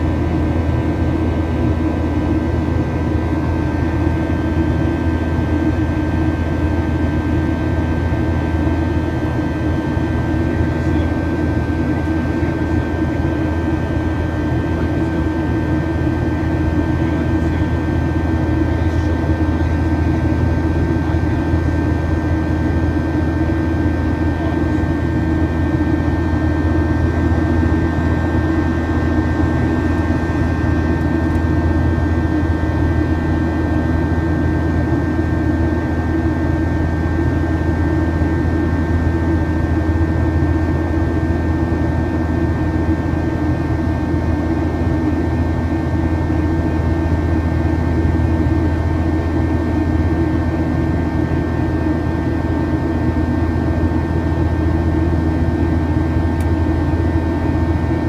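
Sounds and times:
jet engine cabin drone: 0.0 - 58.0.

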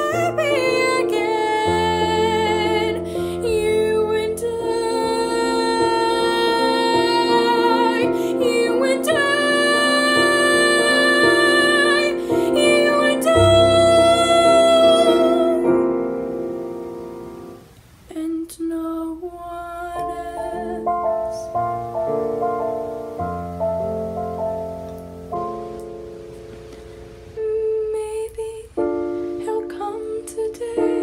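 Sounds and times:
woman singing: 0.0 - 16.1, 18.1 - 21.7, 27.4 - 31.0
piano playing: 0.0 - 17.7, 19.6 - 31.0.

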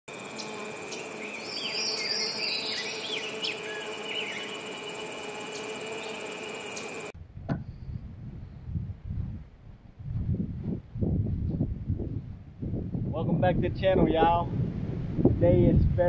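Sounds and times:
high-pitched insect sound: 0.1 - 7.1
low wind-like rumble: 7.2 - 16.0.

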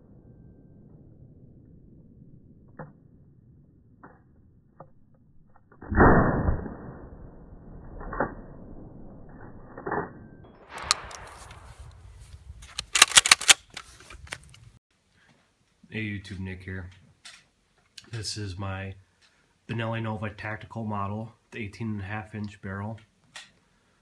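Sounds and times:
shotgun blast: 5.8 - 7.1, 10.6 - 11.8
sharp metallic clicks of gun: 10.7 - 11.6, 12.7 - 14.5.

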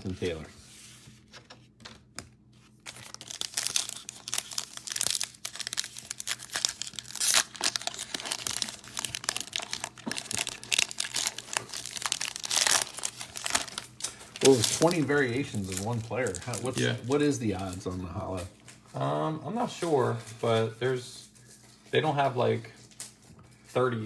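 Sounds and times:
foil wrapper tearing and crinkling: 2.7 - 18.0.

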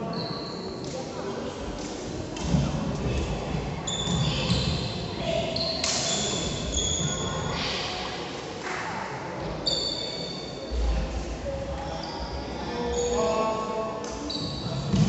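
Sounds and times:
low murmur of voices: 0.0 - 15.0
shoes squeaking on wooden court: 3.9 - 7.4, 14.2 - 14.8.

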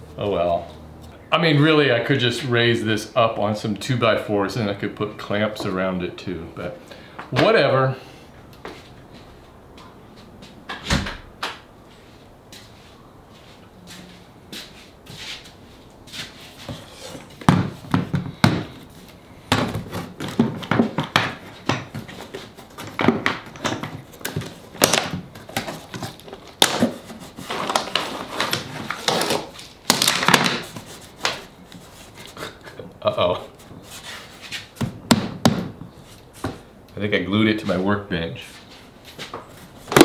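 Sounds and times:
wooden knocks and thumps: 17.4 - 18.8.

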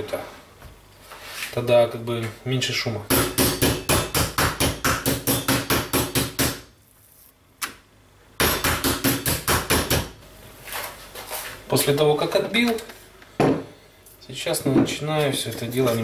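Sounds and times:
meat mallet pounding on board: 3.1 - 6.7, 8.4 - 10.2.

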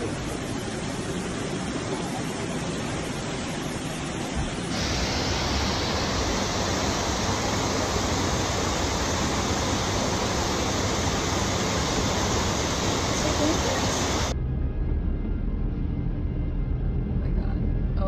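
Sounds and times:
rain and floodwater rushing: 0.0 - 14.3.

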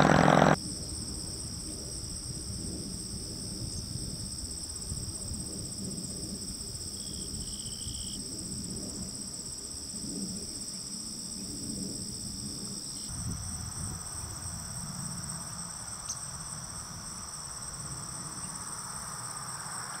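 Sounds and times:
insects trilling: 5.6 - 8.6, 10.5 - 20.0.

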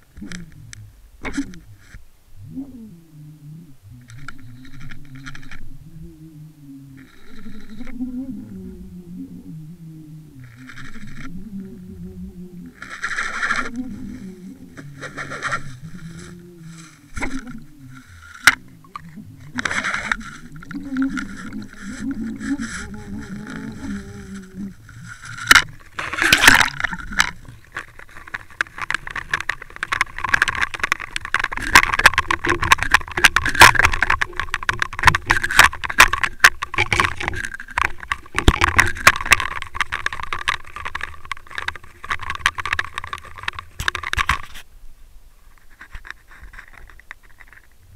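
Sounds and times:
water rushing and splashing: 12.7 - 34.8.

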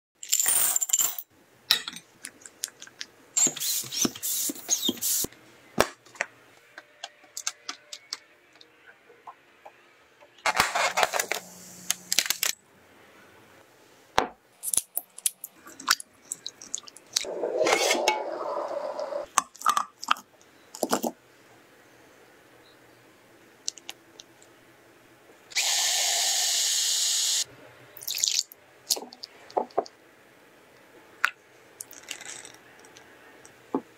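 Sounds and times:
pouring liquid: 28.0 - 28.5.

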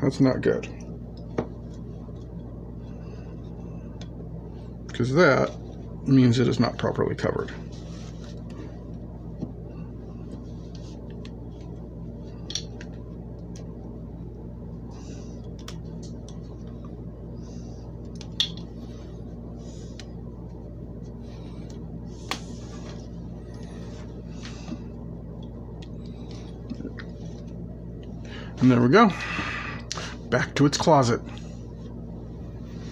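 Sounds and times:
steady low hum: 0.0 - 32.9
paper towel rustling: 7.5 - 8.8.

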